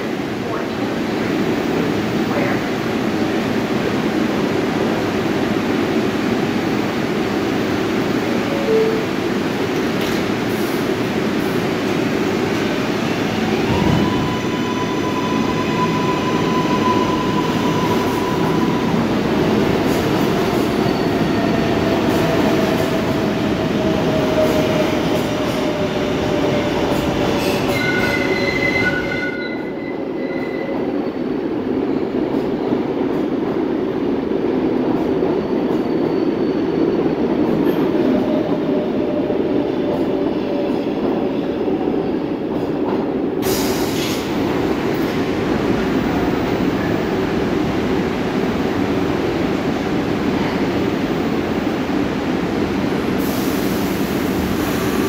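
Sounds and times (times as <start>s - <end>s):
subway train wheels rumbling: 0.0s - 55.0s.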